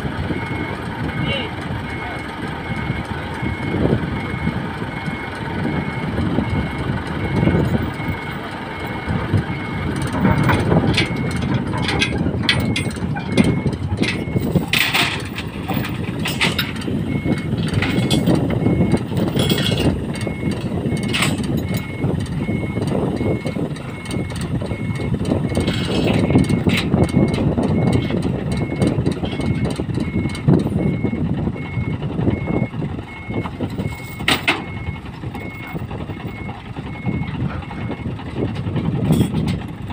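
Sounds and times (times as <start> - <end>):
diesel engine idling: 0.0 - 39.9
metallic clanks of chains: 11.8 - 16.8, 17.8 - 18.4, 19.4 - 19.9.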